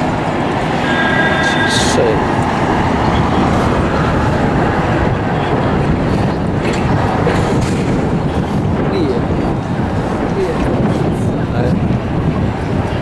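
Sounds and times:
loud low rumbling noise: 0.0s - 10.3s.

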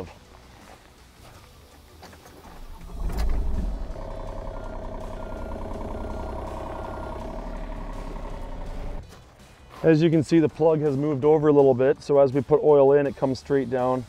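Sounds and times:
diesel engine cranking and running: 2.3s - 9.0s.

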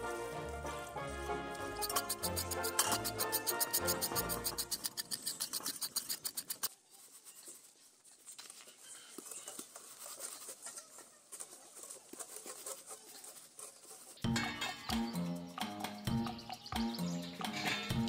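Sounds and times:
knife scraping wet skin: 1.8s - 6.7s.

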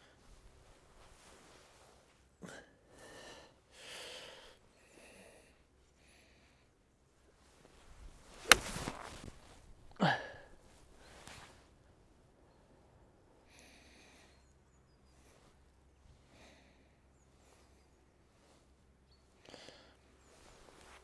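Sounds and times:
golf club swish: 7.8s - 9.7s
golf club striking ball: 8.4s - 9.1s.

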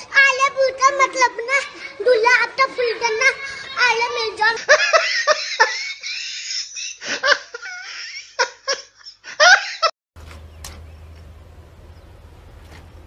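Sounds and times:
person giggling: 4.6s - 9.9s
low steady hum: 10.2s - 13.0s.

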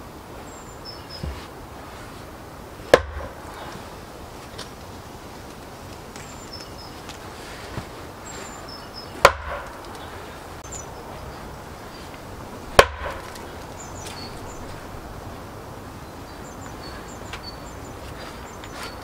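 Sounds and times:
axe chopping log: 2.9s - 3.5s, 9.2s - 10.0s, 12.7s - 14.3s.

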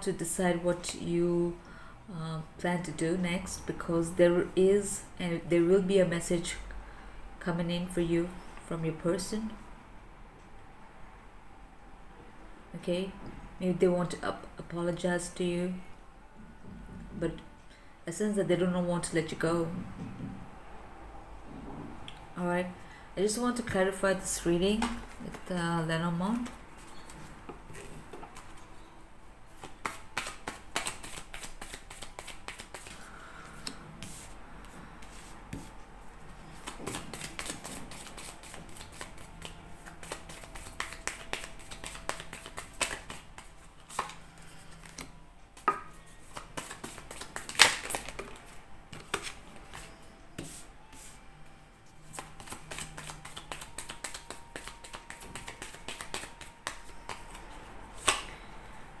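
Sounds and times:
cards being shuffled: 29.6s - 35.7s, 36.5s - 51.2s, 52.1s - 58.3s
cards snapping on table: 44.8s - 48.4s, 52.2s - 57.4s, 58.0s - 58.3s.

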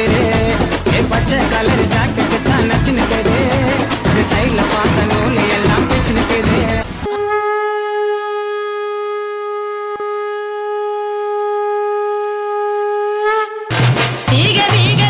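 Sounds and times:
dance music: 0.0s - 7.1s, 14.3s - 15.0s
long wind instrument note: 7.0s - 13.7s.

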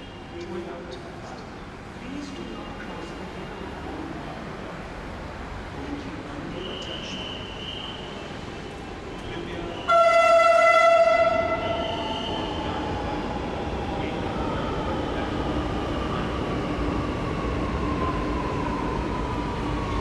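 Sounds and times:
train horn: 9.9s - 11.9s.

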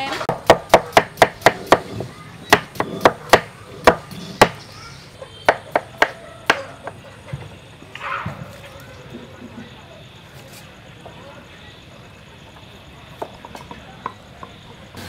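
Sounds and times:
stone pestle pounding in mortar: 0.3s - 4.6s.

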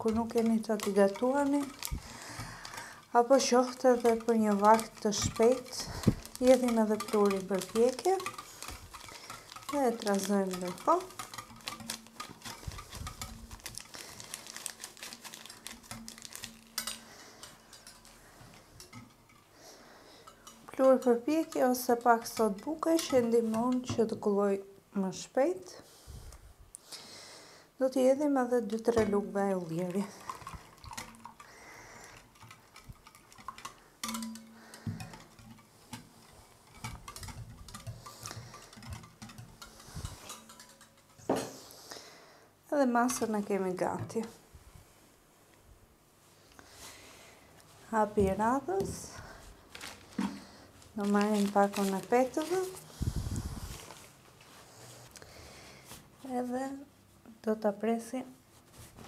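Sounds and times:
whisk clicking against bowl: 0.0s - 19.5s, 20.2s - 24.3s, 28.7s - 41.3s, 43.0s - 44.4s.

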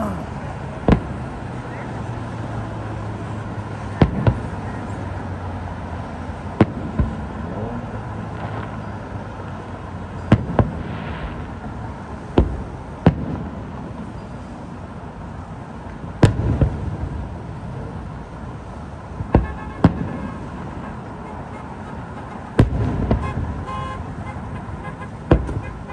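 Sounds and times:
distant firework bangs: 0.0s - 2.2s, 3.2s - 5.1s, 6.4s - 9.2s, 10.2s - 14.5s, 16.0s - 18.2s, 19.1s - 25.9s.

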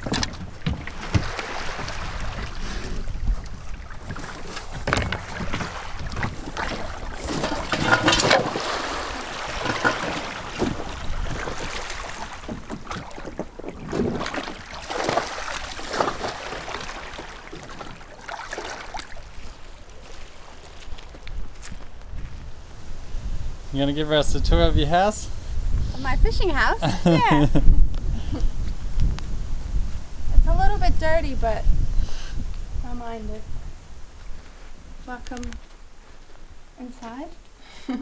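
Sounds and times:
shallow water splashing: 0.0s - 21.9s.

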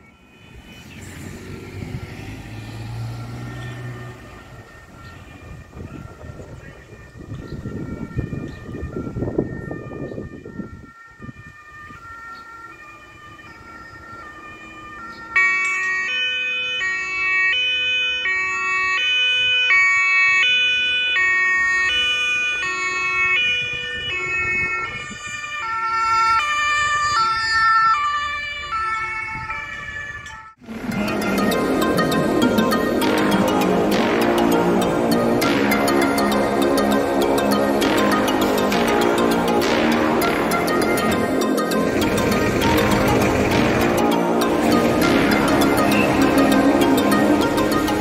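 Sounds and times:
two-tone ambulance siren: 0.0s - 48.0s
car driving past: 0.5s - 5.0s
music: 30.8s - 48.0s.

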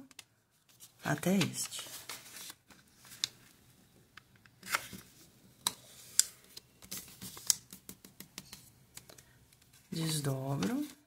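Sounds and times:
paper crackling and rubbing: 0.6s - 3.5s, 5.9s - 8.7s.

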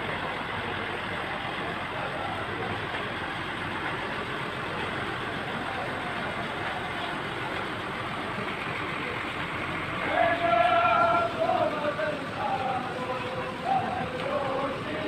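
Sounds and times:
outdoor street noise: 0.0s - 15.0s
vehicle engine idling: 0.0s - 15.0s.

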